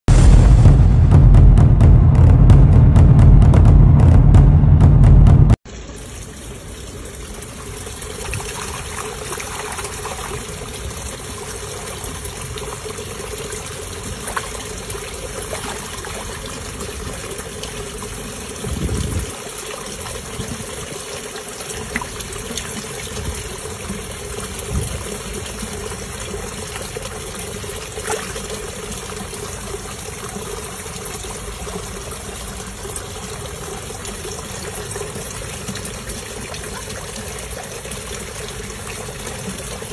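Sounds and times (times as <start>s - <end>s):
water trickling in pond: 5.7s - 39.9s
splashes and knocks: 28.0s - 28.6s.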